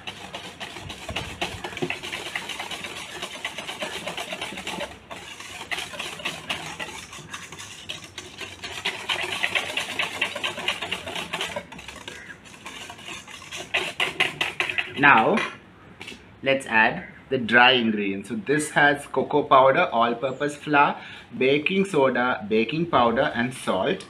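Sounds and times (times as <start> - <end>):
whisk clicking against metal bowl: 0.0 - 15.4.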